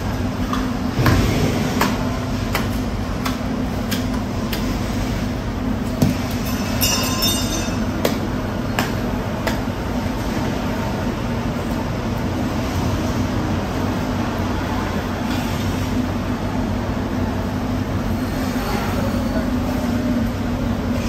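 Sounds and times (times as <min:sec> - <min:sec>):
low machine hum: 0:00.0 - 0:21.0
high ringing tone: 0:06.4 - 0:07.9.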